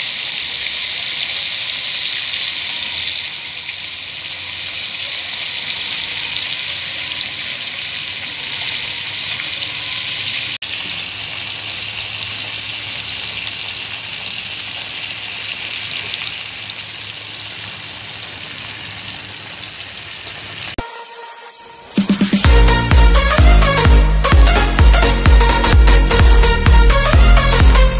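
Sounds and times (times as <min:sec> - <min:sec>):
fish sizzling in hot oil: 0:00.0 - 0:20.8.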